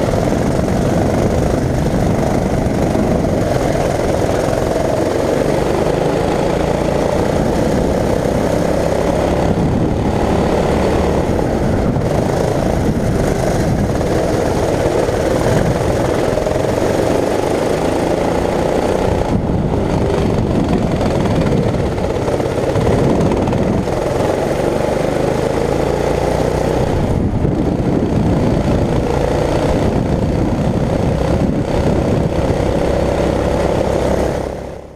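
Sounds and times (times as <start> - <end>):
kart engine running hard: 0.0 - 34.9.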